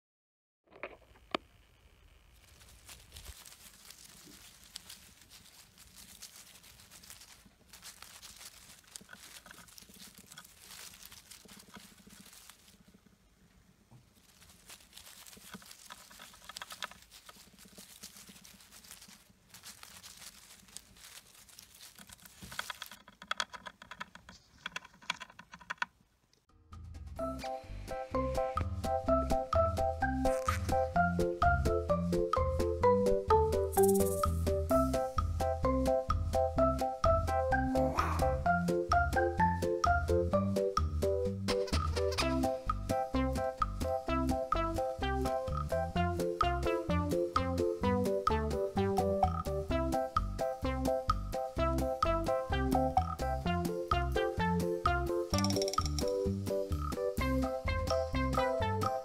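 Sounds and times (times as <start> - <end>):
hamster digging in wood shavings: 2.4 - 25.6, 41.4 - 42.8
soft music: 26.7 - 59.0.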